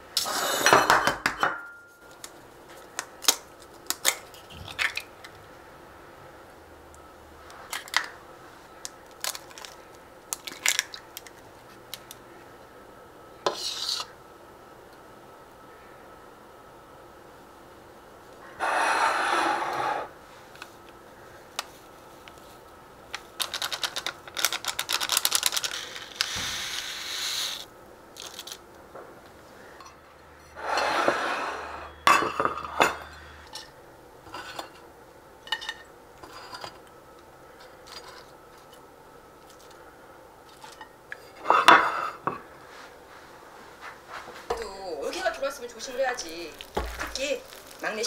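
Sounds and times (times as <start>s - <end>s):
spoon and dishes clinking: 32.0s - 33.7s.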